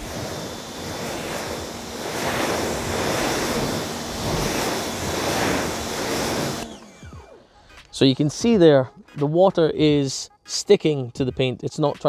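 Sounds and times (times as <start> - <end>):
pressure washer spraying water: 0.0 - 8.3.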